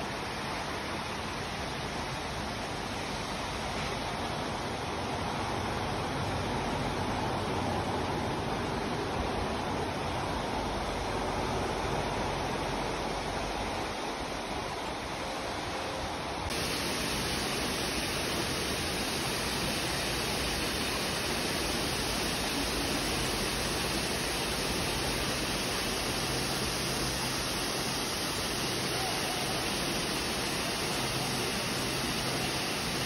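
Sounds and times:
waterfall pouring into pool: 16.5 - 33.0.

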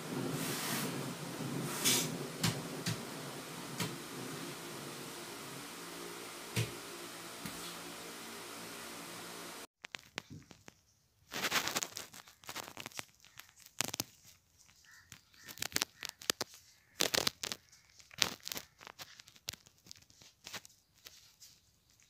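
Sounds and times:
crinkling handling noise: 9.8 - 22.0.

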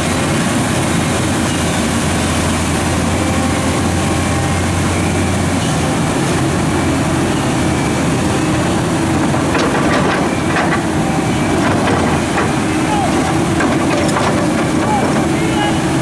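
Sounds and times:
excavator diesel engine running: 0.0 - 16.0
water rushing: 0.0 - 16.0.

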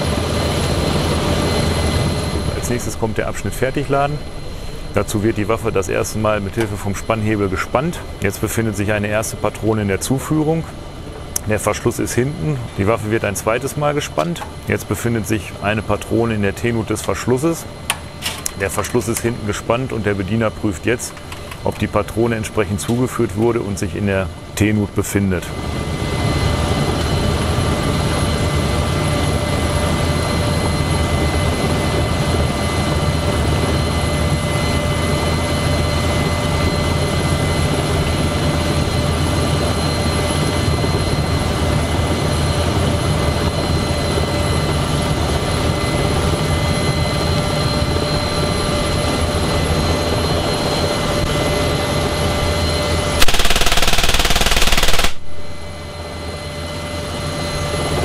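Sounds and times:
helicopter cabin drone: 0.0 - 58.0
turbine and rotor whine: 0.0 - 58.0
heavy machine gun burst: 53.2 - 55.3.

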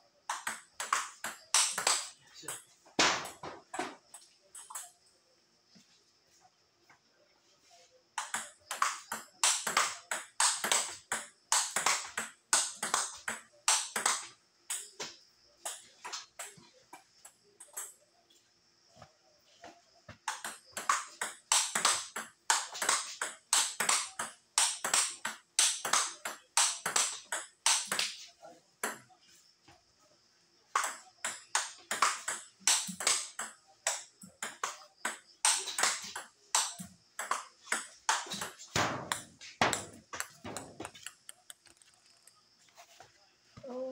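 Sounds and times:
table tennis ball clicking: 30.8 - 42.3.

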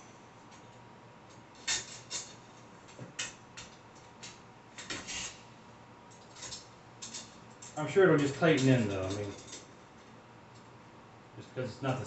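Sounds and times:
metal rods clicking and clinking: 6.1 - 9.7.

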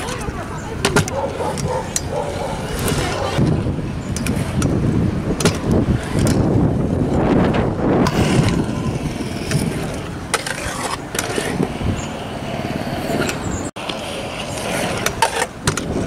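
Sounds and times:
wind buffeting microphone: 0.0 - 13.7
scooter wheels clacking on concrete: 0.0 - 16.0.

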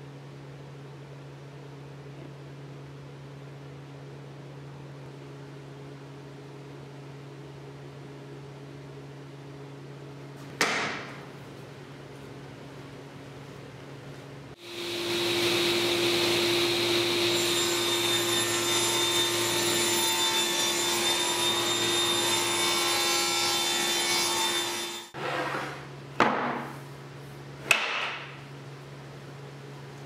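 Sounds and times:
table saw cutting wood: 14.6 - 25.9
sharp wooden knocks: 27.7 - 28.3.

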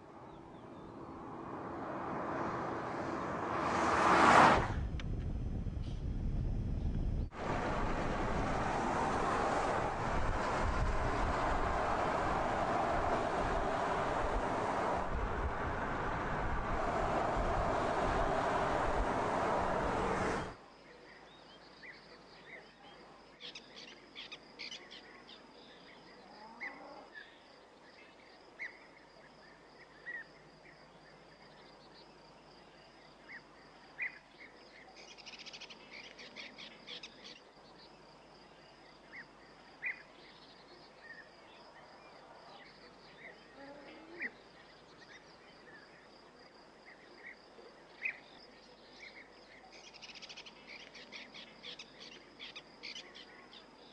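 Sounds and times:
car driving noise: 0.6 - 20.6.

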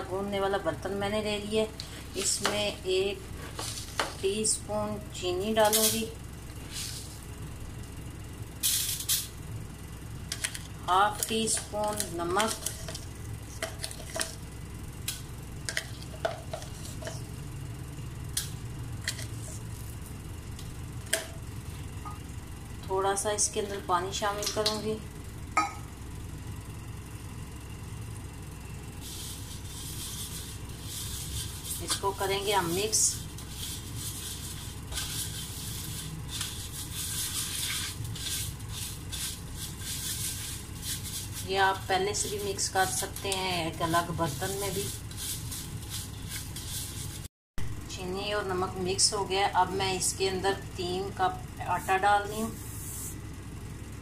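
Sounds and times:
low background hum: 0.0 - 54.0
spoon tapping steel bowl: 25.6 - 25.9
fingers swishing in metal bowl: 29.0 - 47.3.

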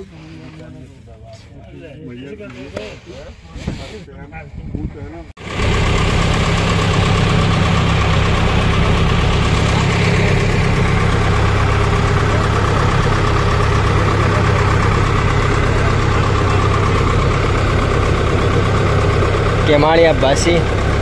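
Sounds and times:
boat engine humming: 5.4 - 21.0.

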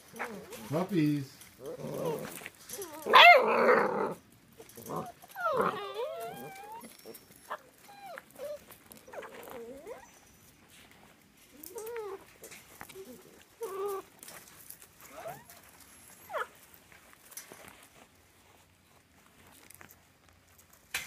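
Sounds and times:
puppies whining: 0.0 - 0.7, 1.6 - 10.6, 11.5 - 16.6.

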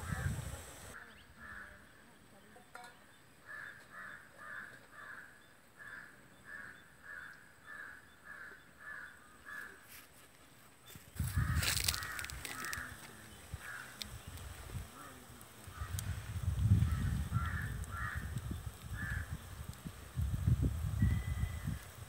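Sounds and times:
crow cawing: 0.0 - 0.4, 3.4 - 10.0, 11.2 - 14.1, 14.9 - 16.2, 16.8 - 19.4
loud rumbling crackling noise: 0.0 - 1.0.

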